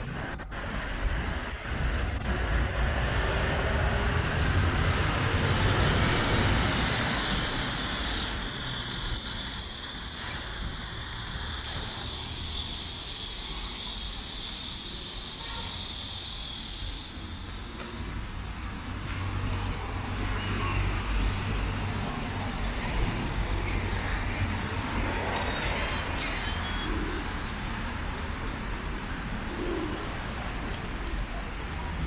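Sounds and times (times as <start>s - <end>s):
road traffic rumble: 0.0s - 32.0s
high hiss: 0.1s - 19.0s.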